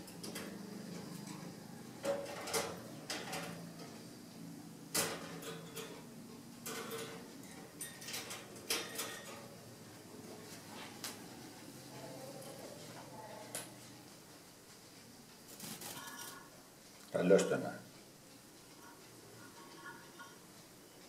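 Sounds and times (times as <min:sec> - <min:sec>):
wire birdcage clicking and rattling: 0:02.0 - 0:03.9, 0:04.9 - 0:06.0, 0:06.6 - 0:09.5.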